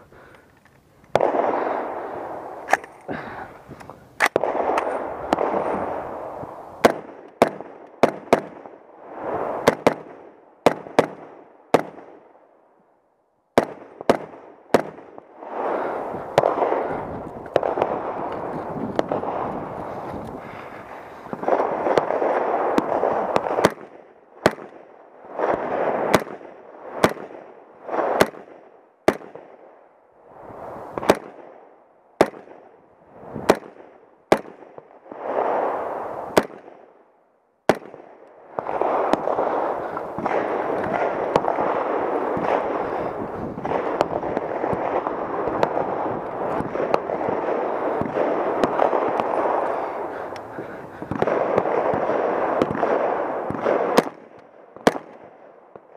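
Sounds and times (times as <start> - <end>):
rifle shots cracking: 1.1 - 3.1, 4.2 - 6.2, 6.8 - 8.7, 9.6 - 12.2, 20.3 - 29.6, 31.0 - 31.5, 37.7 - 55.4
steady rushing noise: 15.3 - 23.4
faint distant gunshot cracks: 37.7 - 55.9.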